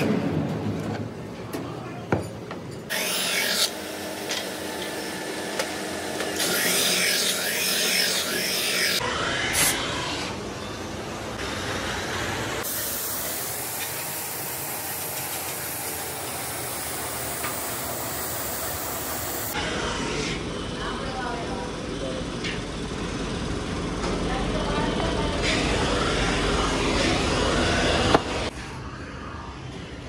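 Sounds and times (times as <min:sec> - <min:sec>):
dust extractor running: 0:02.9 - 0:09.0, 0:10.4 - 0:19.6
grinding machine running: 0:02.9 - 0:09.1, 0:10.4 - 0:20.0
spray gun hissing: 0:12.6 - 0:19.6.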